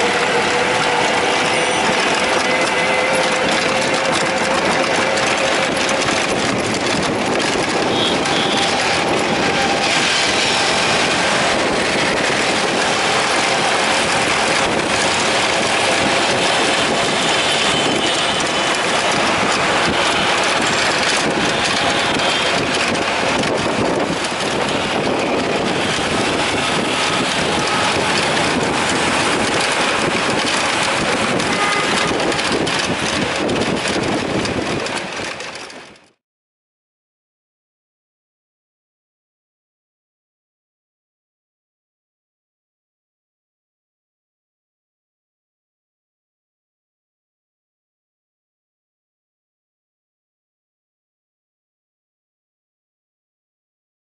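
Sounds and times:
wind on microphone: 0:00.0 - 0:36.0
passing vehicles: 0:00.0 - 0:36.1
rickshaw motor and tyre noise: 0:00.0 - 0:36.2.

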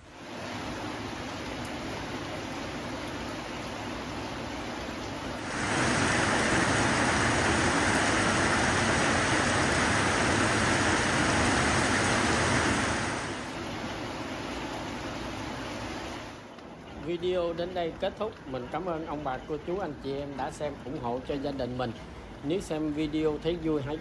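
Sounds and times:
steady rushing noise: 0:05.3 - 0:16.4.

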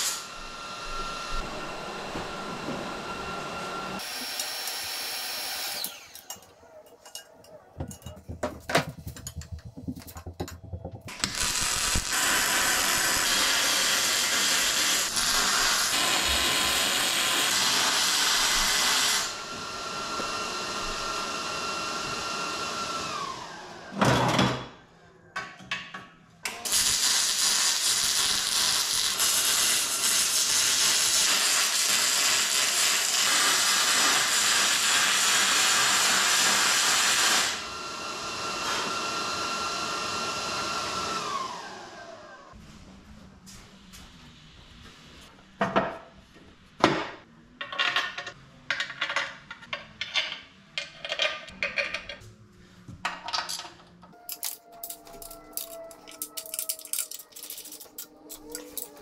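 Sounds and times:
power tool motor whine: 0:00.0 - 0:06.3, 0:11.1 - 0:23.9, 0:26.6 - 0:42.5
knocks and clatter: 0:07.8 - 0:11.2.

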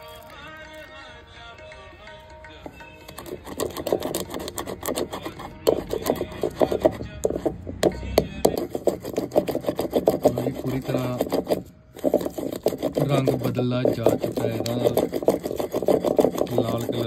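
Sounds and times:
wooden pestle grinding in clay pot: 0:02.7 - 0:17.0.

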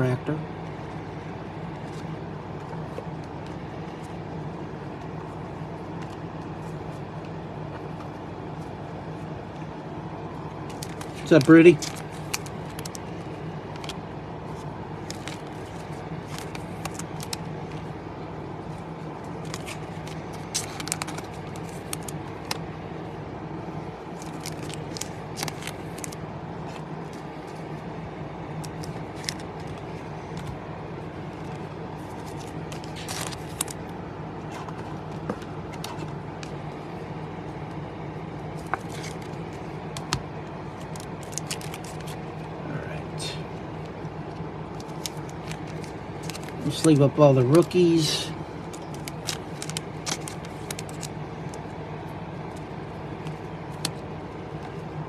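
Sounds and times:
cards being shuffled: 0:10.6 - 0:18.0, 0:18.6 - 0:22.8, 0:24.1 - 0:27.8, 0:28.5 - 0:30.6, 0:31.2 - 0:36.7, 0:38.5 - 0:42.3, 0:43.8 - 0:47.8, 0:48.6 - 0:51.7, 0:52.4 - 0:54.9.

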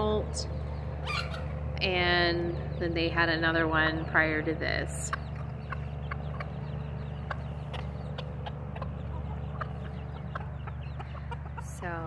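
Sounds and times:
steady low hum: 0:00.0 - 0:12.0
chickens softly clucking: 0:00.6 - 0:01.6, 0:04.9 - 0:12.0.

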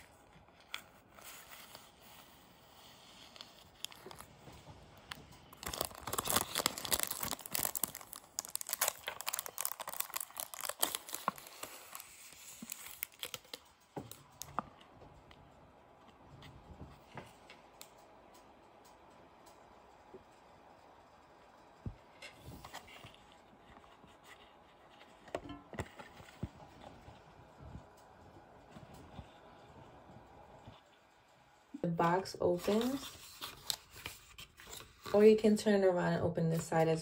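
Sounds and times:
cellophane wrap crackling: 0:03.3 - 0:04.3, 0:05.0 - 0:14.6.

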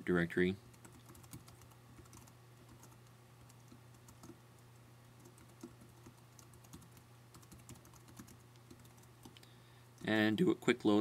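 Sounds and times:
faint steady hum: 0:00.0 - 0:11.0
keyboard typing: 0:00.7 - 0:09.4.

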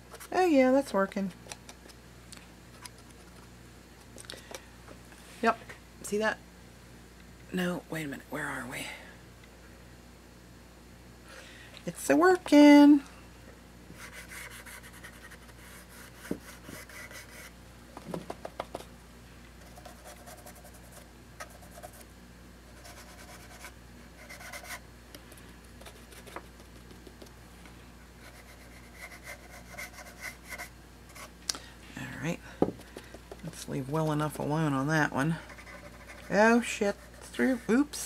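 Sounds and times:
brush scratching on wooden box: 0:14.0 - 0:17.5, 0:22.7 - 0:24.8, 0:28.2 - 0:31.3, 0:35.3 - 0:37.6.

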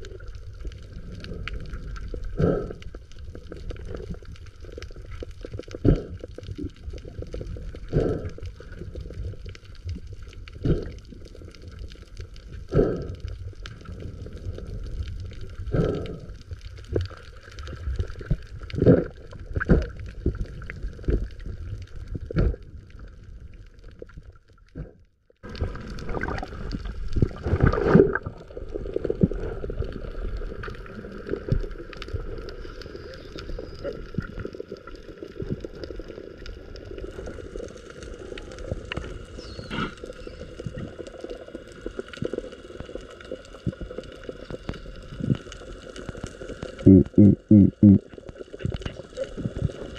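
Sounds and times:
muffled underwater water noise: 0:00.0 - 0:49.9
water rushing and sloshing: 0:25.4 - 0:46.8.

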